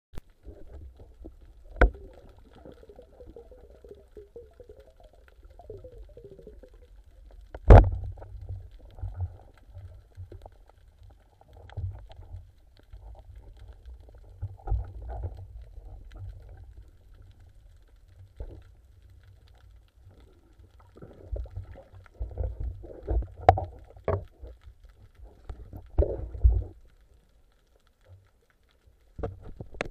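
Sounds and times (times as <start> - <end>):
underwater rumble: 0.2 - 29.9
sharp crack: 7.6 - 8.3.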